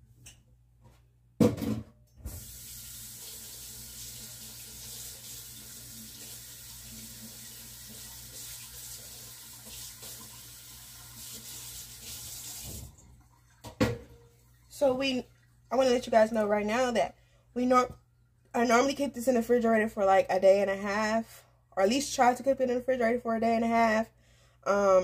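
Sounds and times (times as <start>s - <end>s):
spatula being washed: 2.3s - 13.8s
kitchen faucet running into sink: 2.3s - 15.6s.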